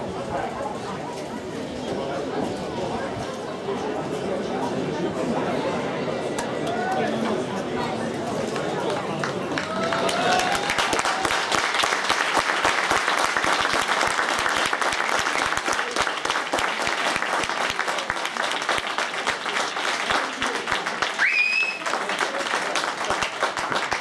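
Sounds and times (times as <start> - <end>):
crowd applauding: 8.4 - 24.0.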